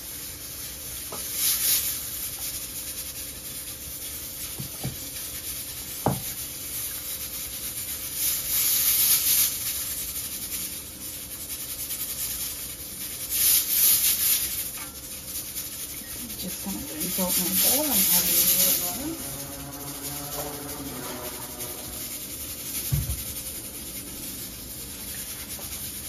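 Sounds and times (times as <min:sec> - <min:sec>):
spoon scraping a metal pot: 0:16.0 - 0:23.8.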